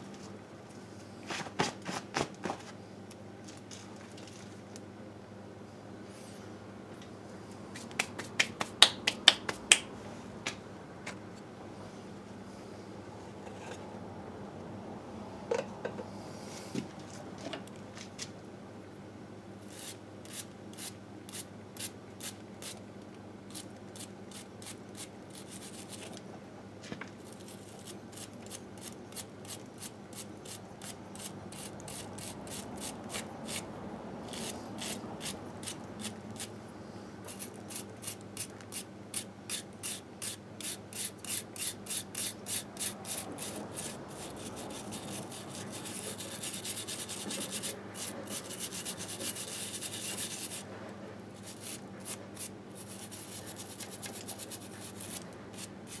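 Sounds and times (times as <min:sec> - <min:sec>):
wire brush scrubbing metal: 0:27.5 - 0:33.6, 0:37.3 - 0:50.6, 0:51.4 - 0:56.0.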